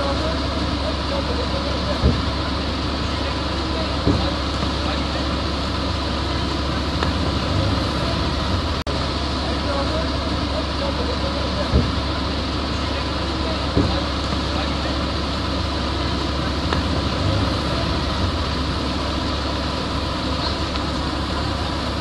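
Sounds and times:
truck engine running: 0:00.0 - 0:22.0
short thumps: 0:02.0 - 0:02.5, 0:04.0 - 0:04.9, 0:11.6 - 0:12.2, 0:13.7 - 0:14.5.

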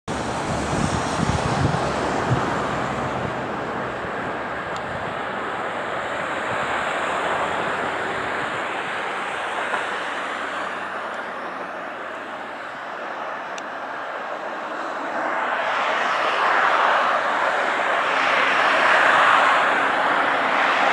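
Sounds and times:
wind buffeting microphone: 0:00.1 - 0:11.6
distant jet engine roar: 0:00.1 - 0:20.9.

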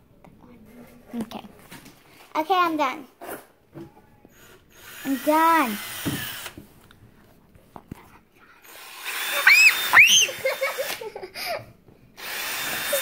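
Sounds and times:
cordless drill whirring: 0:04.3 - 0:06.6, 0:08.6 - 0:11.0, 0:12.2 - 0:13.0.

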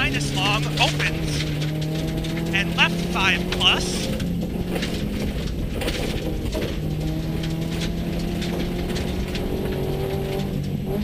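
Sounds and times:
car engine pulling: 0:00.0 - 0:11.0
gravel under tyres: 0:00.0 - 0:11.0.

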